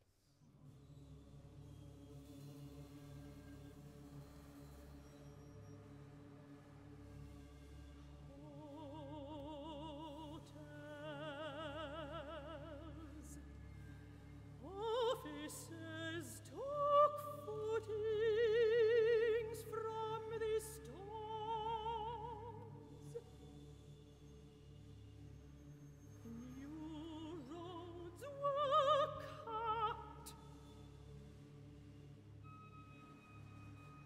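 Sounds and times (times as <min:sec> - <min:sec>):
soprano singing with vibrato: 0:08.4 - 0:13.4, 0:14.6 - 0:22.8, 0:26.3 - 0:30.4.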